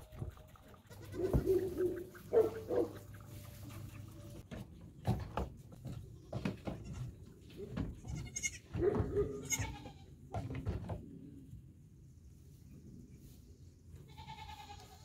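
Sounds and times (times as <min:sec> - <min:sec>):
baby goats bleating: 0:00.9 - 0:01.4, 0:08.0 - 0:08.7, 0:09.4 - 0:10.1, 0:14.1 - 0:15.0
rustling in straw: 0:01.1 - 0:04.4.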